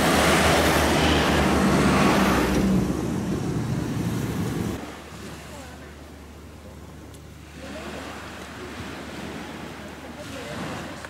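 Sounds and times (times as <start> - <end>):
car passing close by: 0.0 - 5.4
quieter street traffic: 0.0 - 11.0.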